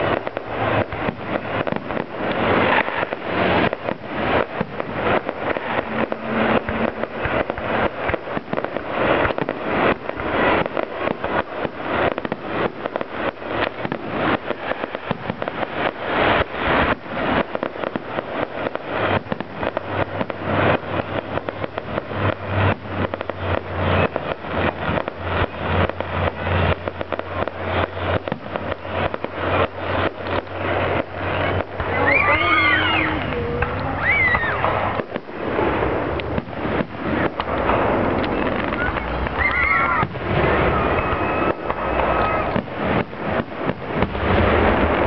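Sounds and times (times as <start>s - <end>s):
fireworks bursting and crackling: 0.0s - 45.0s
low hum: 2.2s - 10.6s.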